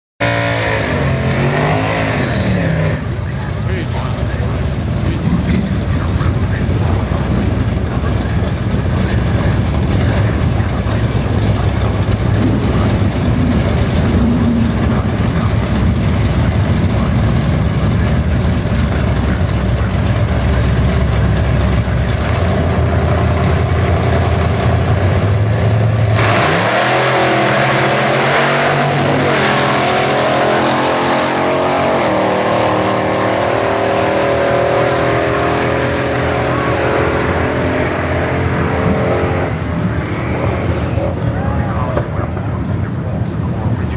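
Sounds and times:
racing engine revving: 0.2s - 42.5s.

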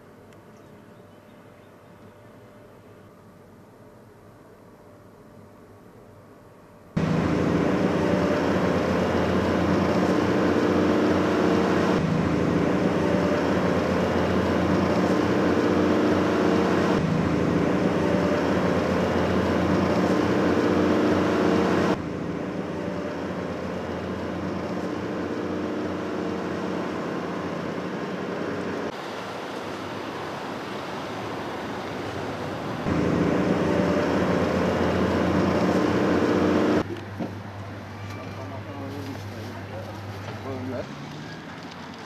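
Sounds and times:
vehicle engine hum and road noise: 6.9s - 42.0s.

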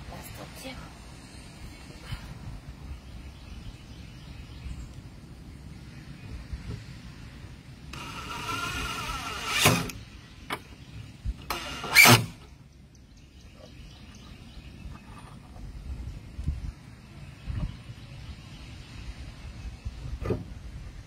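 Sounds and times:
cordless drill whirring: 7.9s - 10.0s, 11.5s - 12.4s.

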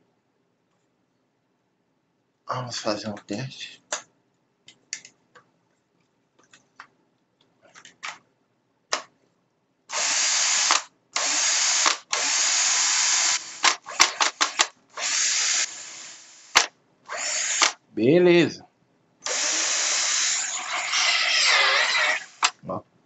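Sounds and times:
cordless drill motor running: 9.9s - 16.5s, 17.1s - 17.8s, 19.2s - 22.5s.

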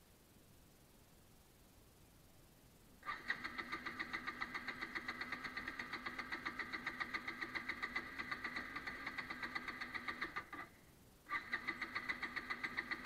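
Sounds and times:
electric starter cranking engine: 3.0s - 10.7s, 11.3s - 13.0s.

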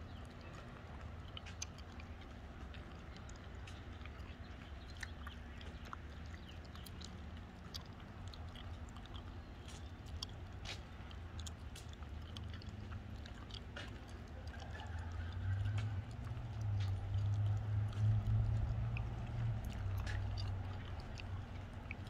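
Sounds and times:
steady low rumble: 0.0s - 22.0s
footsteps on concrete: 9.6s - 14.3s.

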